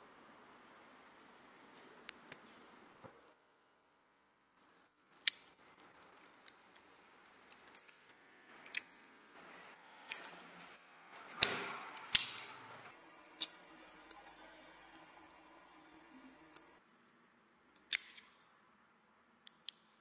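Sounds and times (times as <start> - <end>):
metal tool clicks and snaps: 8.6 - 8.9, 17.8 - 18.4, 19.5 - 20.0.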